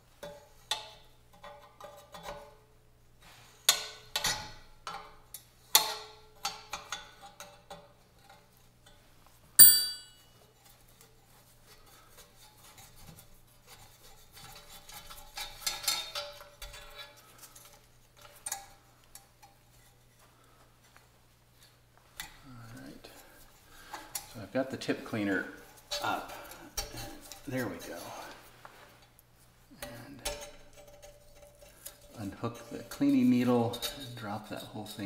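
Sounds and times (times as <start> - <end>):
loud ringing metallic clink: 9.6 - 10.4
metal tools clinking and scraping: 9.6 - 10.8, 11.8 - 20.0, 29.8 - 35.0.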